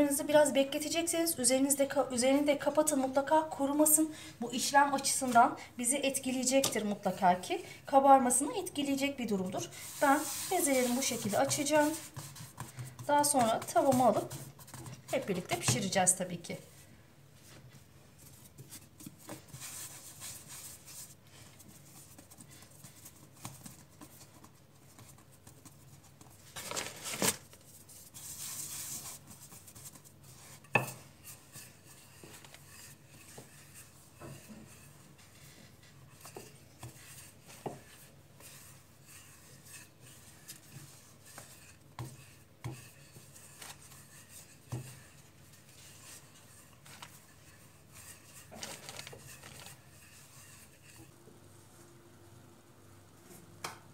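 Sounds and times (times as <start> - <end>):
rolling pin rubbing dough: 8.3 - 16.2, 27.8 - 51.2.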